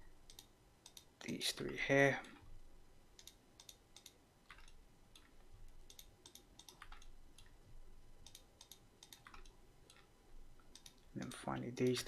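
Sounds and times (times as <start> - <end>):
computer mouse clicks: 0.2 - 1.4, 3.2 - 7.6, 8.2 - 11.4.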